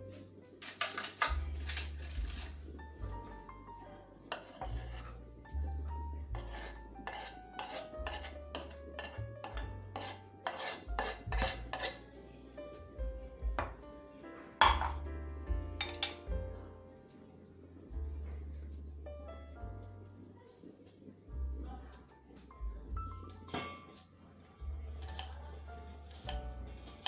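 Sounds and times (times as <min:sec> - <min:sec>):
knife scraping board into pan: 0:04.3 - 0:05.2, 0:06.4 - 0:12.1, 0:25.0 - 0:27.0
background music with bass: 0:12.6 - 0:16.8
sharp knock on pan: 0:14.6 - 0:15.0.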